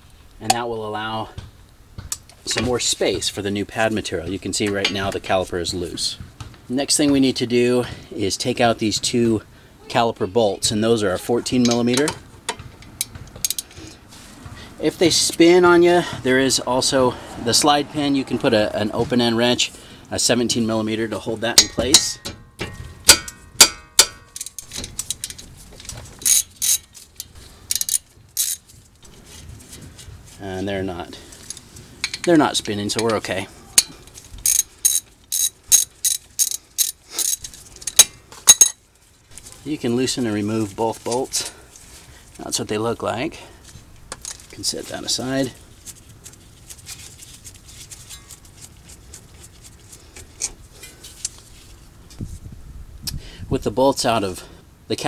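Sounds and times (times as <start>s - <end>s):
ratchet wrench clicking: 24.4s - 25.4s, 26.2s - 28.6s, 34.4s - 38.7s.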